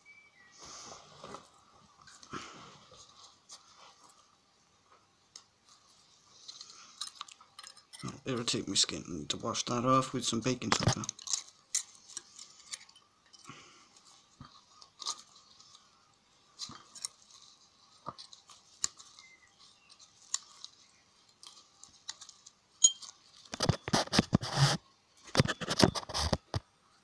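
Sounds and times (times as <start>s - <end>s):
camera handling crunching and rustling: 6.4s - 8.5s, 10.6s - 26.7s
gloved hands and tools clicking: 6.4s - 8.6s, 10.6s - 15.9s, 16.5s - 26.7s.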